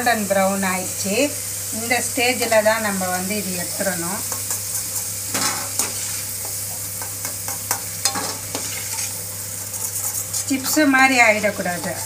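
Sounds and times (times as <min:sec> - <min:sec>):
oil sizzling: 0:00.0 - 0:12.0
ladle clinking and scraping pan: 0:07.0 - 0:12.0.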